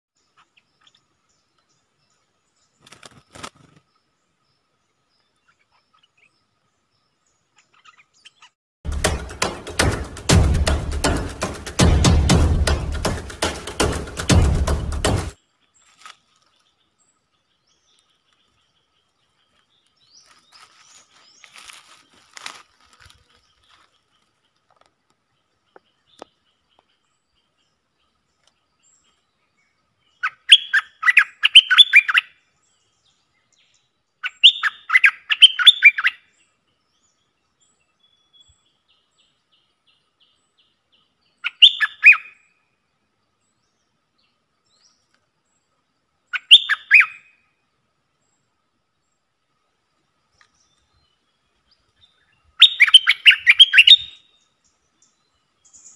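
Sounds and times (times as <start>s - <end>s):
bird chattering song: 7.4s - 15.3s, 25.3s - 32.4s, 33.1s - 37.2s, 37.9s - 42.6s, 46.3s - 47.4s, 50.4s - 55.9s.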